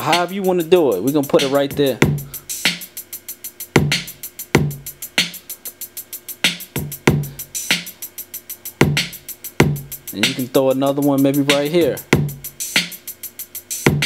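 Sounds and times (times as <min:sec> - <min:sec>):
closed hi-hats: 0:00.0 - 0:14.0
open hi-hat: 0:00.0 - 0:14.0.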